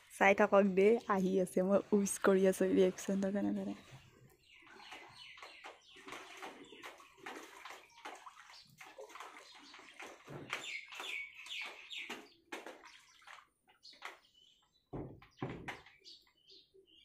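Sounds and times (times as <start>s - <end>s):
person wading through water: 3.8s - 13.7s.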